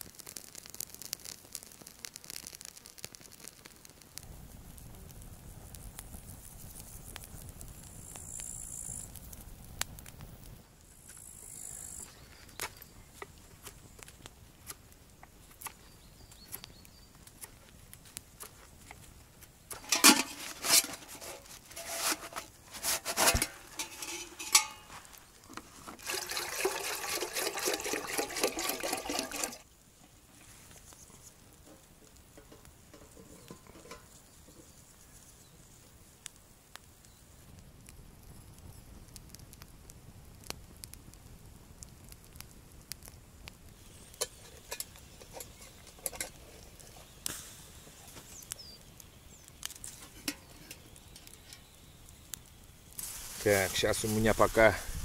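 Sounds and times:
campfire crackling: 0.0s - 55.0s
metal cookware clanking: 19.7s - 25.0s, 26.1s - 29.6s, 32.4s - 34.1s, 44.2s - 46.4s
water pouring into metal pot: 25.8s - 29.7s.

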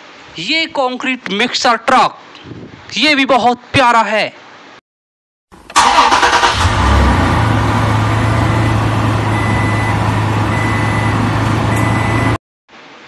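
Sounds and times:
truck engine starting and idling: 5.6s - 12.4s.

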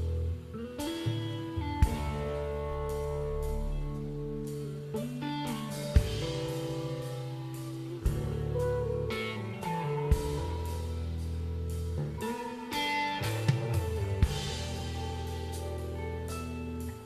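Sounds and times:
electric guitar: 0.0s - 17.0s
low bass notes: 0.0s - 17.0s.

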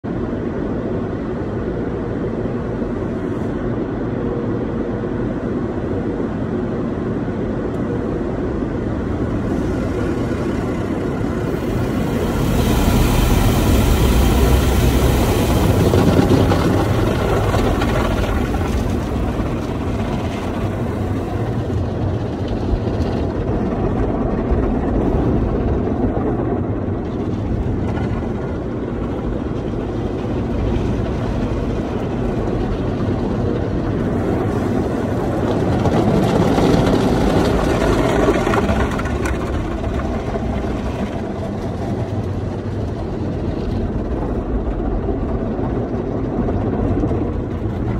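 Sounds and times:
car wash rumble and hiss: 0.1s - 47.9s
water sheeting over roof: 9.2s - 25.9s, 26.8s - 47.9s.

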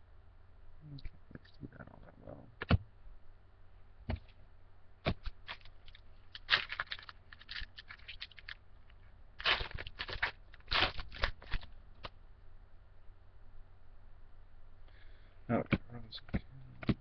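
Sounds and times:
card pack wrapper crinkling and tearing: 5.1s - 8.6s, 9.4s - 12.1s.

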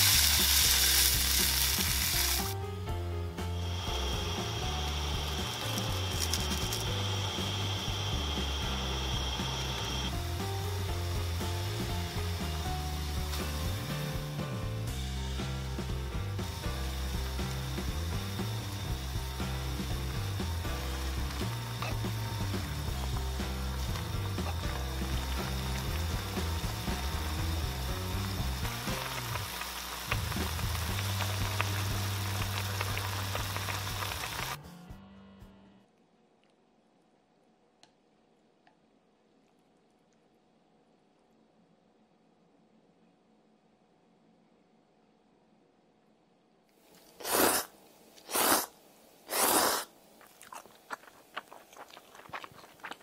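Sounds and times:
noodles boiling in a pot: 0.0s - 2.6s, 3.6s - 34.6s, 47.1s - 53.0s
person slurping noodles: 47.2s - 48.7s, 49.3s - 53.0s
wet chewing and smacking: 50.2s - 53.0s.

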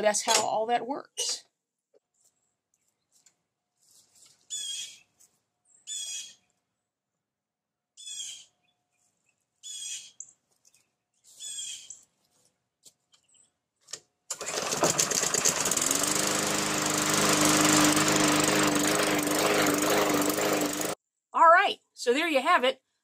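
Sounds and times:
bird calls: 4.5s - 5.1s, 5.7s - 6.5s, 8.0s - 8.7s, 9.6s - 12.0s
lawn mower engine running: 14.3s - 21.0s.

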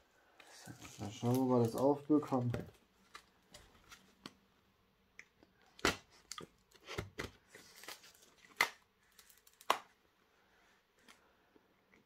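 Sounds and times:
cardboard rustling and crinkling: 0.4s - 4.3s.

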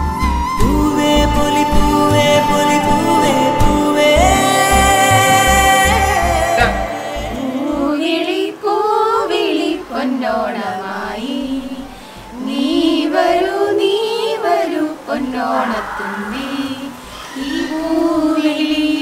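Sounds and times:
steady low beat: 0.0s - 7.9s
held instrumental chord: 0.0s - 8.0s
women singing: 0.0s - 19.0s.

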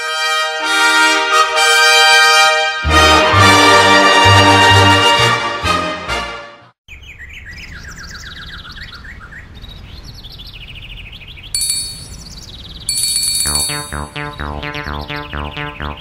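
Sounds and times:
sparrows chirping: 6.9s - 16.0s
high ringing tone: 11.6s - 14.2s
music with a steady beat: 13.4s - 16.0s.

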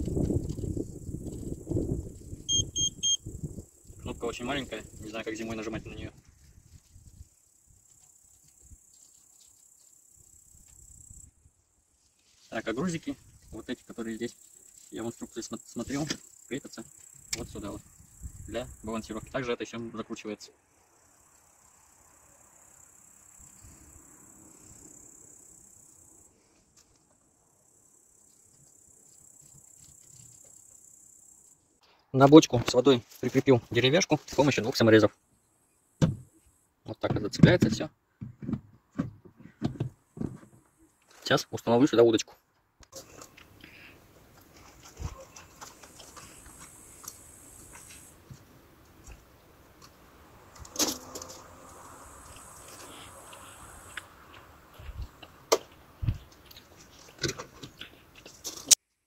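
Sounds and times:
crickets chirring: 0.0s - 31.9s, 32.8s - 37.0s, 42.9s - 58.8s.

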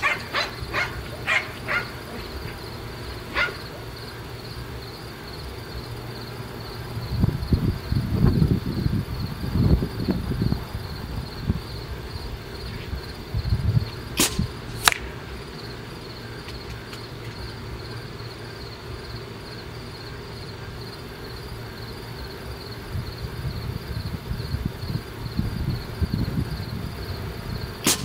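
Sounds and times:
crickets chirping: 0.0s - 28.0s
air rifle shot cracks: 14.2s - 15.2s.

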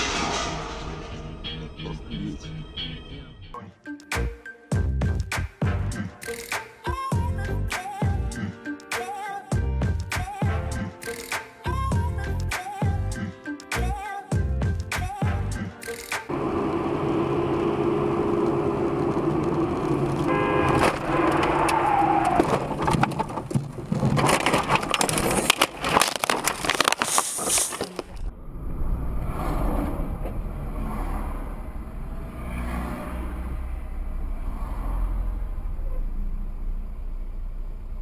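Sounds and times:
car engine and road noise: 16.3s - 38.0s.

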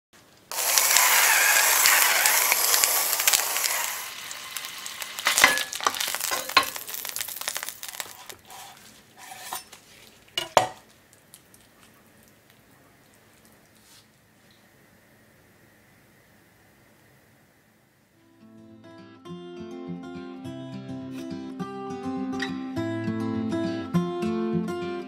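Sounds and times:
beef sizzling in a frying pan: 0.5s - 10.9s.

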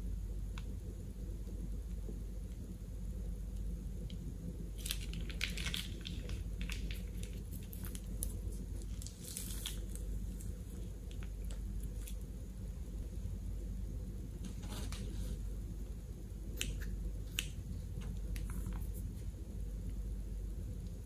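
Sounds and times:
plastic piping bag crinkling: 4.8s - 12.4s.

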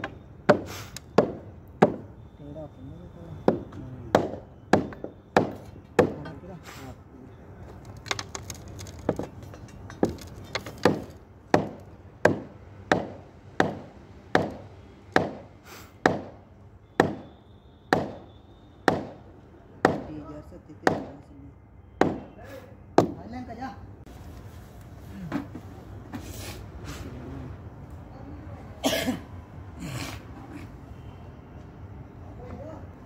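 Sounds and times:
sharp ringing knocks: 3.4s - 6.4s, 9.1s - 19.2s.

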